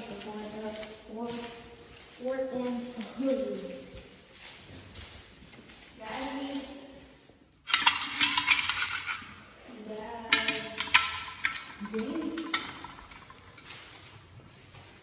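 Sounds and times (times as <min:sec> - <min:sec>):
metal clinking and clattering: 0:07.6 - 0:13.8.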